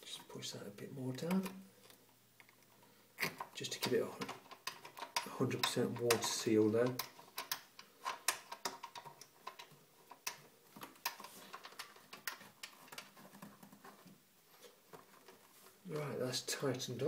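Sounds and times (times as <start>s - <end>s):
nut tightening clicks: 1.2s - 13.9s.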